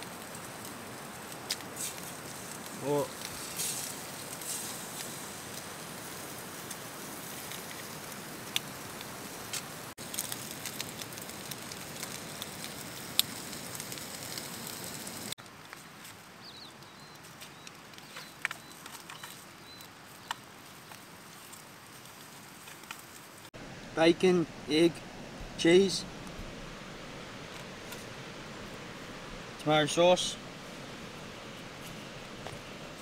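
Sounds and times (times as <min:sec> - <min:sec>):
bacon and egg sizzling in a pan: 0:00.0 - 0:15.4.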